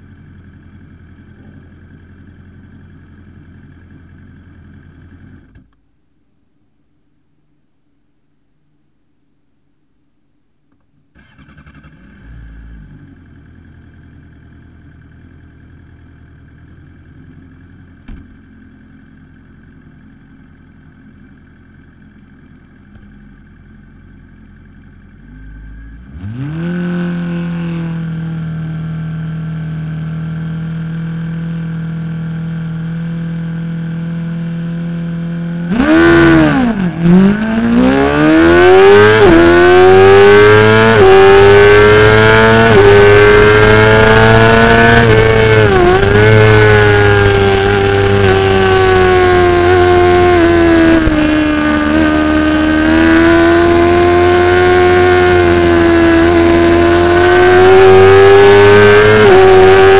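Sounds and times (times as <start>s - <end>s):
motorcycle engine revving: 11.2s - 18.9s, 24.6s - 59.9s.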